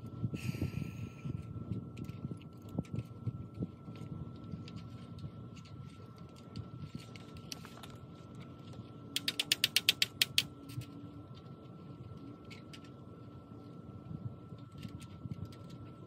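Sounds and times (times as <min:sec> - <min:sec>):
rapid ratchet clicks: 0:09.2 - 0:10.5.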